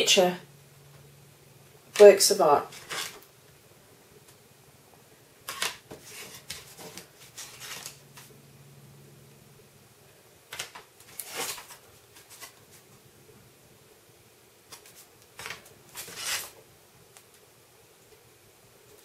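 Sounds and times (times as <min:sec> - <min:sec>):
cards rustling and scraping: 0:02.7 - 0:03.2, 0:05.4 - 0:08.3, 0:10.5 - 0:12.8, 0:14.7 - 0:16.6.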